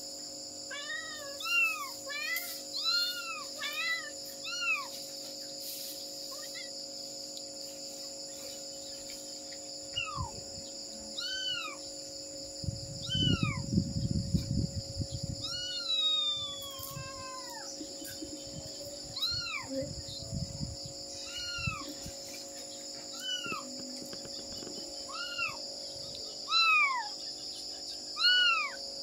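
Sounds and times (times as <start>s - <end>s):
cat meowing: 0.7s - 4.9s, 13.0s - 13.6s, 15.4s - 17.7s, 19.2s - 19.7s, 21.2s - 21.9s, 23.1s - 23.6s, 25.1s - 25.6s, 26.5s - 27.1s, 28.2s - 28.8s.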